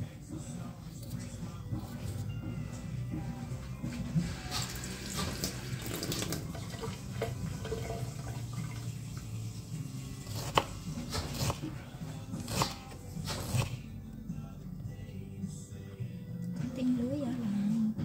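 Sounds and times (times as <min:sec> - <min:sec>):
knife cutting on wooden board: 0:10.2 - 0:11.8, 0:12.4 - 0:13.8.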